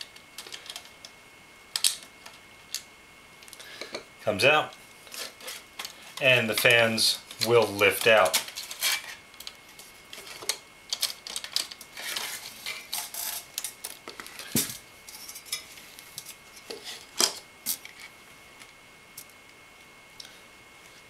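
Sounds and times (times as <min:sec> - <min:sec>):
plastic parts clicking and rattling: 0:00.4 - 0:01.0, 0:08.0 - 0:14.7.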